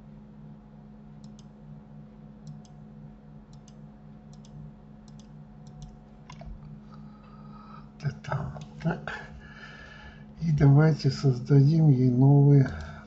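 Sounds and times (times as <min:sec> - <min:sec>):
low steady hum: 0:00.0 - 0:13.0
computer mouse clicking: 0:01.2 - 0:01.5, 0:02.4 - 0:02.8, 0:03.5 - 0:06.5.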